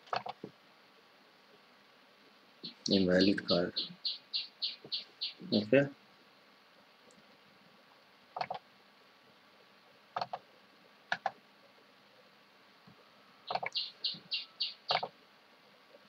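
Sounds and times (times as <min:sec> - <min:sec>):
computer mouse clicks: 0:08.4 - 0:08.6, 0:10.2 - 0:10.4, 0:11.1 - 0:11.4, 0:14.9 - 0:15.1.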